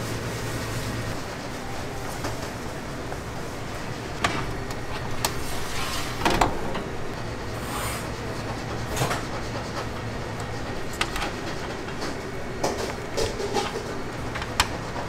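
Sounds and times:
sharp clicks and knocks: 0:08.5 - 0:15.0.

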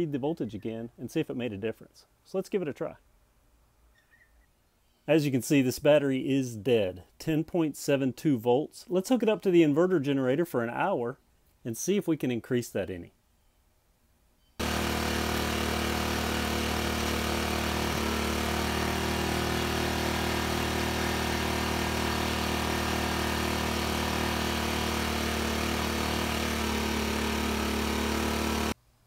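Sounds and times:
generator engine running: 0:14.6 - 0:28.8.

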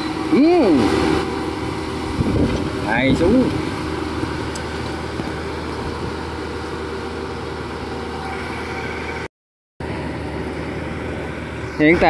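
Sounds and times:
combine harvester engines running: 0:00.0 - 0:12.0.

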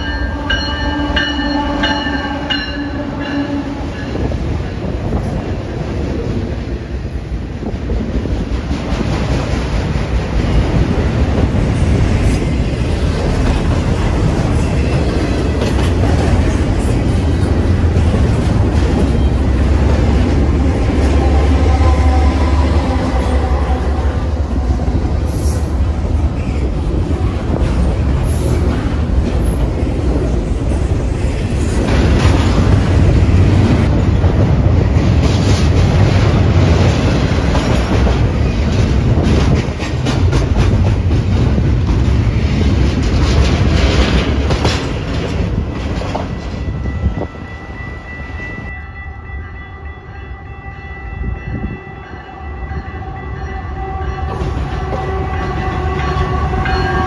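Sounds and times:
freight train heavy rumble: 0:00.0 - 0:57.0
wheels clacking over rail joints: 0:35.0 - 0:46.6.

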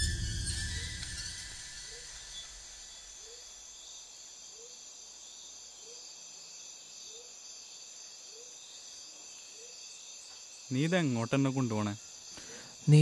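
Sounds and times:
insects chirring: 0:00.0 - 0:13.0.

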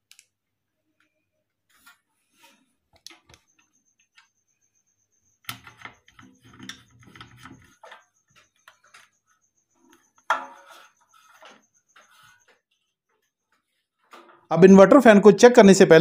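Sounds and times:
metal brackets being handled: 0:09.9 - 0:12.6.

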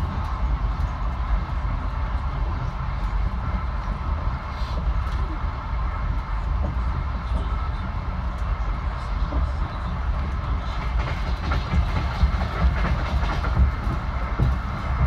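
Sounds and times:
train rumble from inside carriage: 0:00.0 - 0:15.0.

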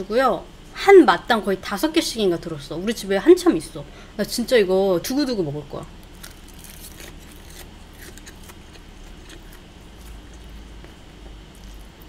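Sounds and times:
steady low hum: 0:00.0 - 0:12.0
crisp chewing: 0:05.9 - 0:12.0.

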